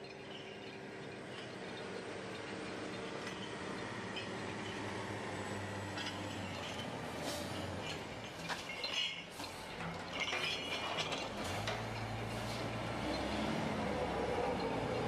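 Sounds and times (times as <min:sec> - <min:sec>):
logging yarder engine running: 0:00.0 - 0:15.0
metal clinks and knocks: 0:07.8 - 0:12.1.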